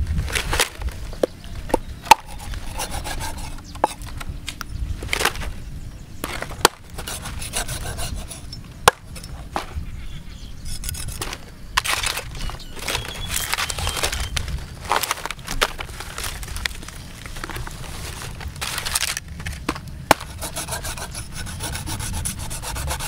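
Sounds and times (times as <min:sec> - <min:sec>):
cleaver scraping on chopping block: 0:01.7 - 0:04.2, 0:06.2 - 0:09.4, 0:10.7 - 0:13.9, 0:20.1 - 0:23.0.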